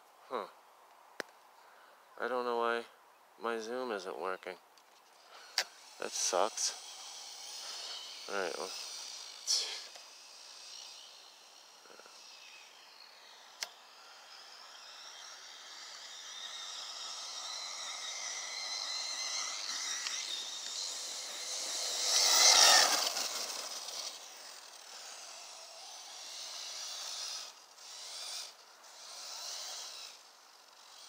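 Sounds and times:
electric motor whining: 5.1 - 31.0.

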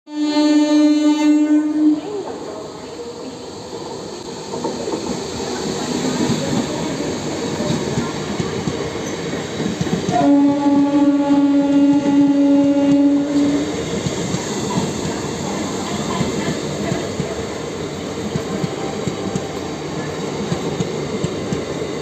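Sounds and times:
train horn: 0.1 - 2.3, 10.1 - 13.8
train wheels rumbling and clattering: 2.0 - 22.0.

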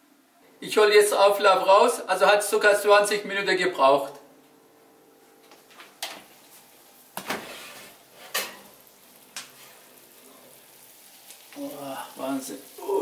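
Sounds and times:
oven rack and glass clattering: 7.2 - 8.8.

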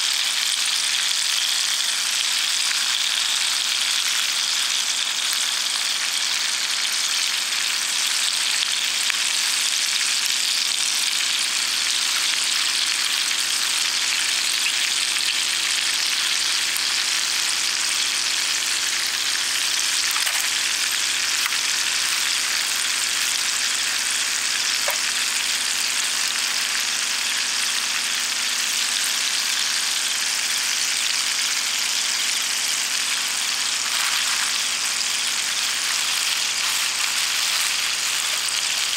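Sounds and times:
food sizzling in skillet: 0.0 - 38.9.

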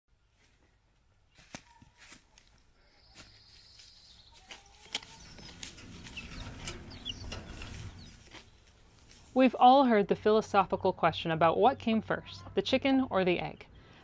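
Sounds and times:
chickens scratching and clicking: 3.7 - 9.5.

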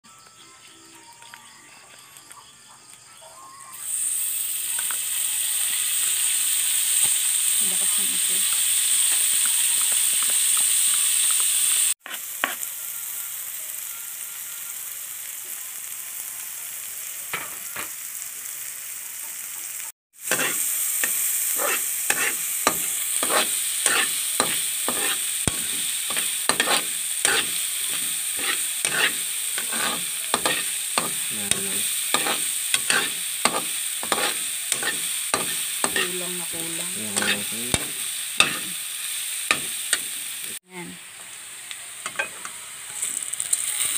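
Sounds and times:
fat sizzling in a wok: 0.1 - 43.9
metal spatula scraping wok: 12.0 - 12.7, 20.2 - 38.9, 39.5 - 40.2.

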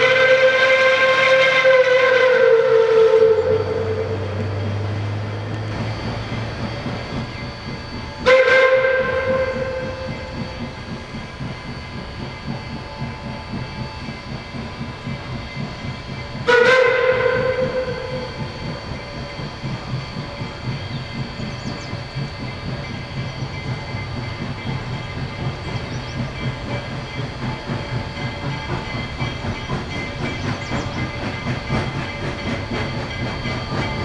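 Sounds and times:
steam whistle blast: 0.0 - 4.5, 5.5 - 10.6, 16.3 - 20.2
steam locomotive exhaust beating: 0.0 - 34.0.

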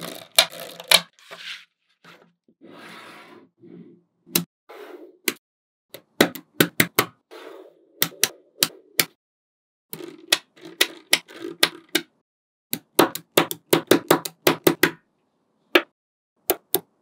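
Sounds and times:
balls rattling: 0.0 - 1.1.

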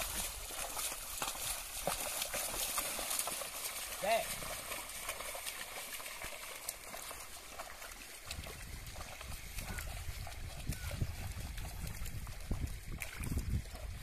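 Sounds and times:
water sloshing and trickling: 0.0 - 14.0
wind rumbling on microphone: 8.2 - 14.0.

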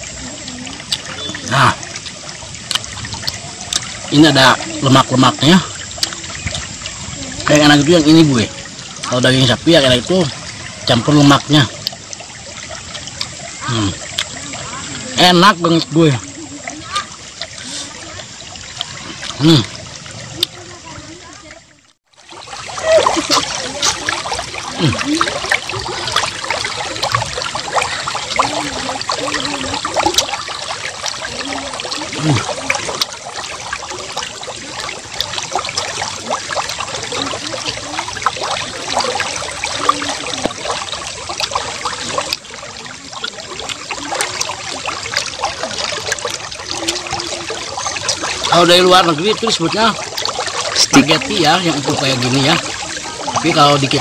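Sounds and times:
wet chewing and lip-smacking: 0.8 - 1.2, 2.0 - 4.0, 5.9 - 6.2, 11.8 - 12.2, 12.8 - 13.4, 14.0 - 14.4, 20.3 - 20.6.

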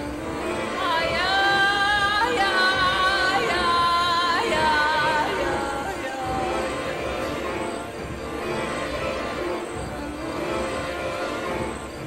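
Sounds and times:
low musical backing: 0.0 - 12.0.

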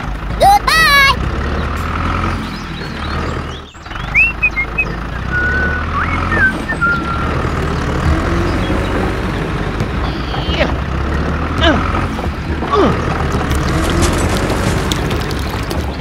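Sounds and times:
tractor engine rumble: 0.0 - 16.0
whistle-like chirps: 4.2 - 7.5.

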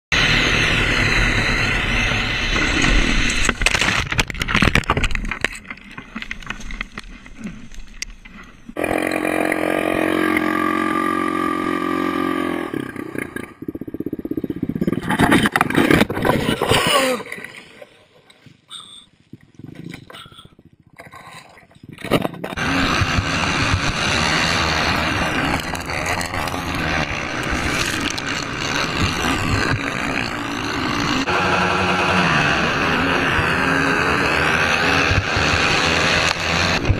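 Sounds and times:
atv engines revving: 8.7 - 15.3, 22.6 - 36.9
wind buffeting camera: 19.3 - 29.9.

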